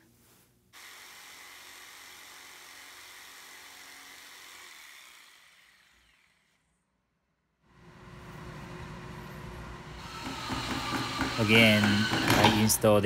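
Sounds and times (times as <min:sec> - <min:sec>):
jigsaw cutting wood: 0:00.8 - 0:06.7, 0:10.0 - 0:12.6.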